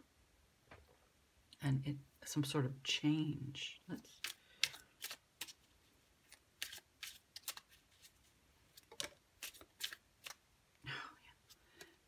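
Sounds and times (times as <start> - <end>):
cards shuffling: 4.1 - 10.4.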